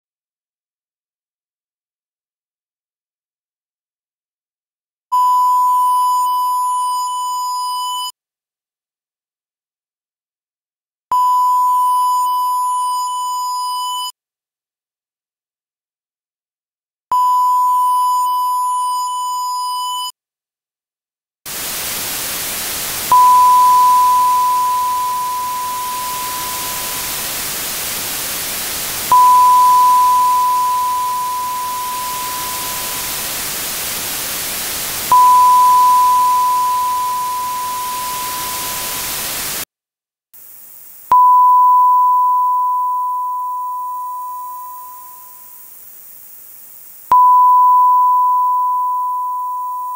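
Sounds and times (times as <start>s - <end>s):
sine wave ping: 5.1s - 8.2s, 11.1s - 14.2s, 17.1s - 20.1s, 23.1s - 28.4s, 29.1s - 33.4s, 35.1s - 39.2s, 41.1s - 45.7s, 47.1s - 49.9s
hiss of dither noise: 21.5s - 39.7s, 40.4s - 41.1s, 45.2s - 47.1s
thin high-pitched hiss: 21.5s - 39.7s, 40.4s - 49.8s.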